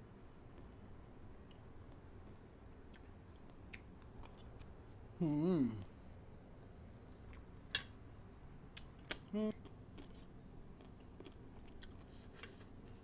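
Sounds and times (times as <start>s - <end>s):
brief vocal sound: 5.2s - 5.9s.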